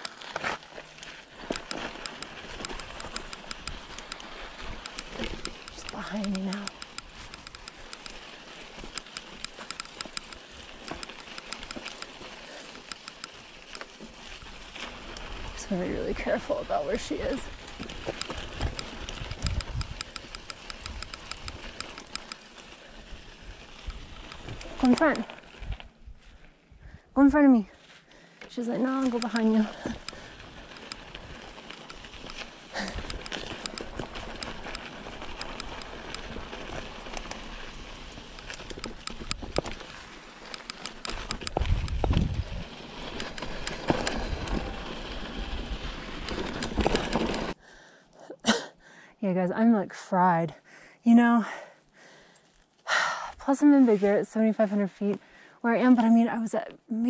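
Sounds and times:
bike clicks and knocks: 0:00.0 - 0:15.4, 0:17.0 - 0:23.1, 0:28.8 - 0:47.6
bicycle freehub ticking: 0:00.0 - 0:16.0, 0:17.0 - 0:25.2, 0:28.8 - 0:47.6
tyres rumbling on dirt: 0:00.0 - 0:26.0, 0:28.5 - 0:47.6
wind rumble on microphone: 0:18.5 - 0:20.0, 0:41.4 - 0:42.8.

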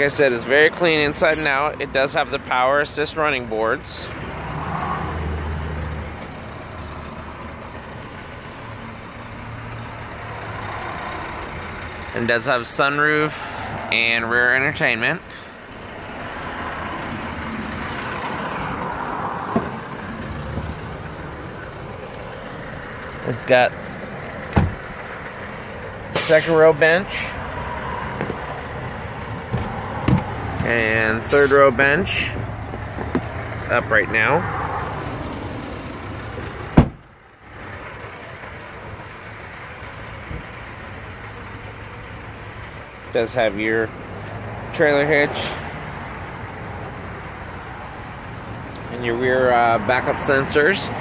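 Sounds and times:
vehicle rumble: 0:00.0 - 0:51.0
car door shutting: 0:24.5 - 0:24.9, 0:29.5 - 0:30.7, 0:36.7 - 0:37.0.

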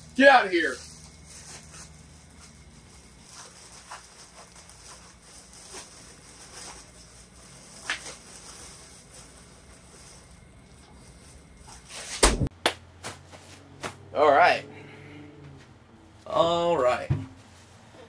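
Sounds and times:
blanket rustling and shuffling: 0:00.2 - 0:12.2.

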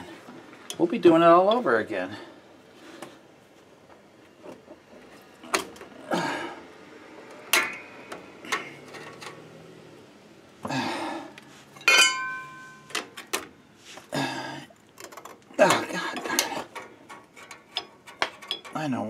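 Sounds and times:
metal clinks and clanks: 0:11.8 - 0:13.4, 0:15.0 - 0:19.0.

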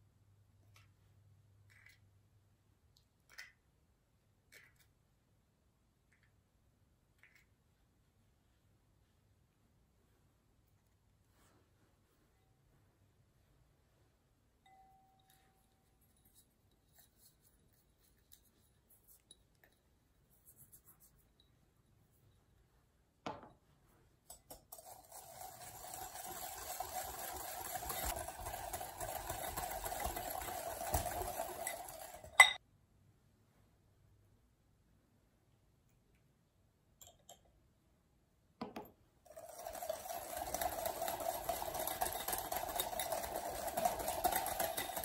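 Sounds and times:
whisk beating in glass bowl: 0:24.3 - 0:32.6, 0:39.3 - 0:45.0
whisk clinking against bowl: 0:24.3 - 0:32.6, 0:39.3 - 0:45.0.

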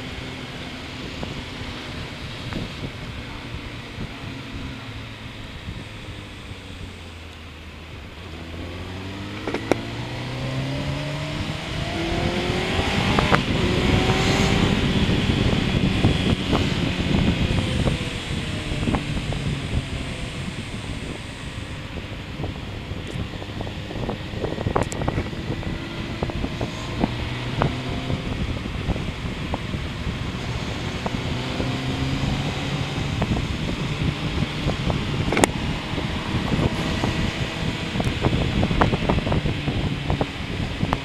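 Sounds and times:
motorcycle engine running: 0:00.0 - 0:41.0
wind rumble on microphone: 0:00.0 - 0:41.0.

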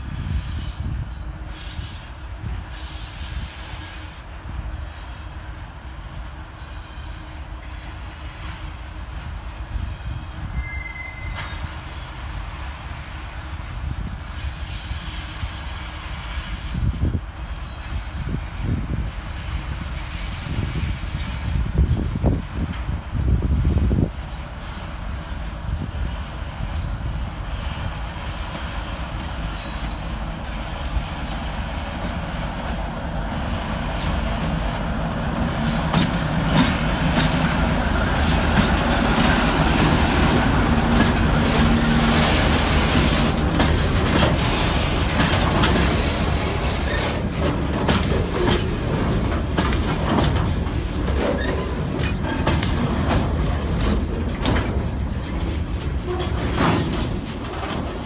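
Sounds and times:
diesel locomotive engine passing: 0:00.0 - 0:58.0.

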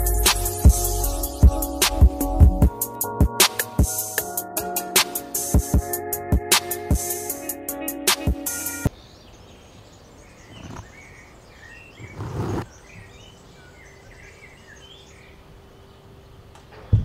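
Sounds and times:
birds chirping: 0:06.8 - 0:17.0
low background noise: 0:08.9 - 0:17.0.

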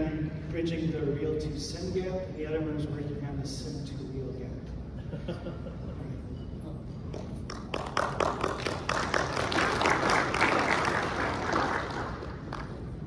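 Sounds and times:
audience applauding: 0:07.5 - 0:13.0.

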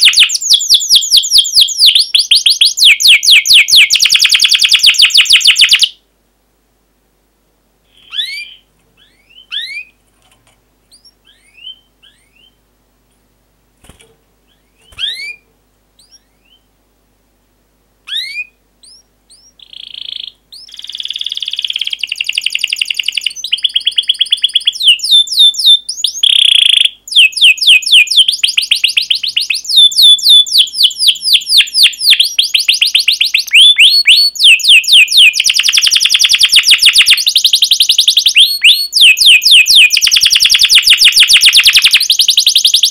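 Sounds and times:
canary singing: 0:00.0 - 0:06.0, 0:07.9 - 0:12.6, 0:13.8 - 0:16.7, 0:18.0 - 0:42.9.

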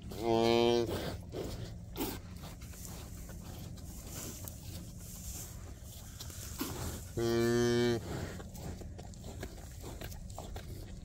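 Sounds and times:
cow mooing: 0:00.2 - 0:00.9, 0:07.2 - 0:08.0.

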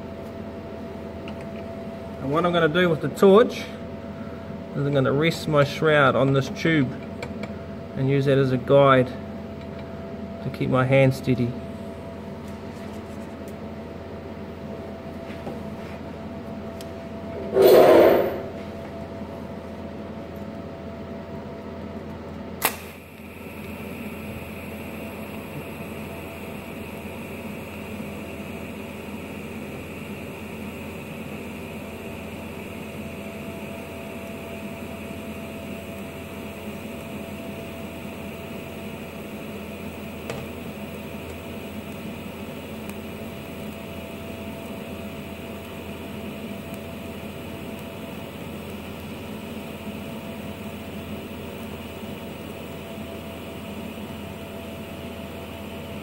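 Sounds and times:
welding arc buzzing hiss: 0:17.3 - 0:18.8, 0:22.6 - 0:56.0
welding arc crack: 0:22.6 - 0:23.8.

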